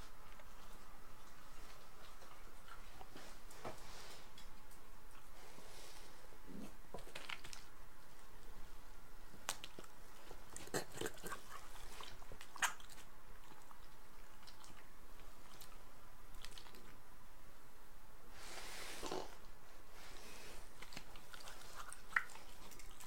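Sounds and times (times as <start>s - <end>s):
dogs chewing: 0.0s - 5.4s, 9.4s - 17.0s, 20.7s - 23.0s.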